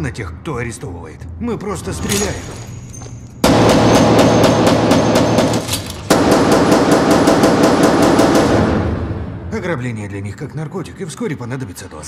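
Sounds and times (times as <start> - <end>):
rapid handgun fire: 3.4 - 9.4.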